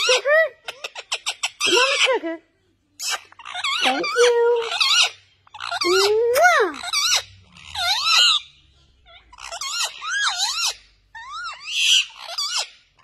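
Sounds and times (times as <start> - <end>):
parrots chattering: 0.0 - 13.0.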